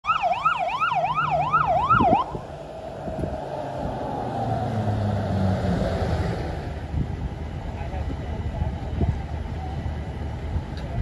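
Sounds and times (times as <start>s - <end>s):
fire engine siren: 0.0s - 8.2s
truck engine running: 0.1s - 11.0s.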